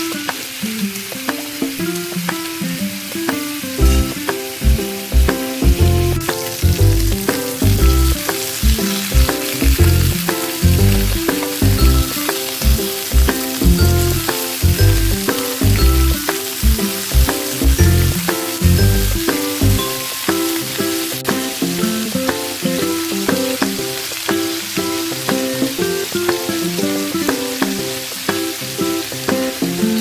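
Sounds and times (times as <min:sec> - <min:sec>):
meat sizzling in frying pan: 0:00.0 - 0:30.0
background music with bass beat: 0:03.8 - 0:19.9.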